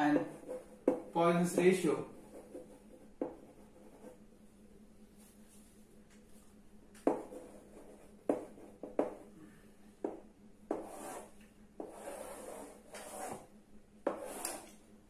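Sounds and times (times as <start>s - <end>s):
chalk tapping on blackboard: 0.0s - 4.2s, 7.0s - 9.3s, 10.0s - 14.7s
chalk scraping on blackboard: 10.7s - 13.5s, 14.1s - 14.7s.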